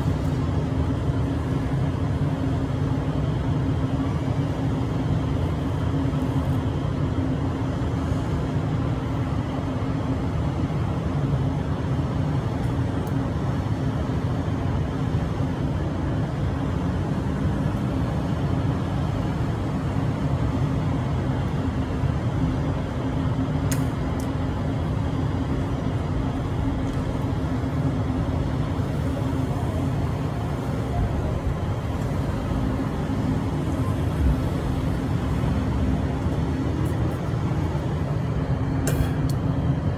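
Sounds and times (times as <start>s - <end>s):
city traffic rumble: 0.0s - 39.9s
low hum: 11.6s - 39.9s.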